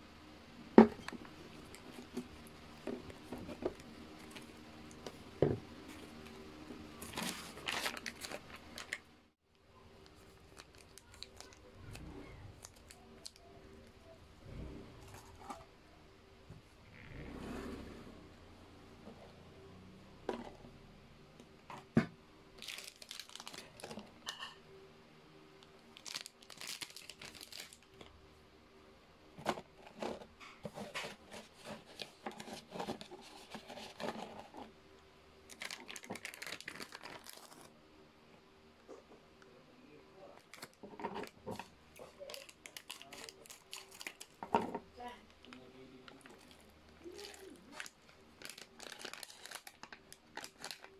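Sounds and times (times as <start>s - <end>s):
plastic packaging crinkling: 1.0s - 6.3s, 7.0s - 9.1s, 10.0s - 13.5s, 22.6s - 24.6s, 25.9s - 28.1s, 29.4s - 34.7s, 35.5s - 37.7s, 40.3s - 50.9s.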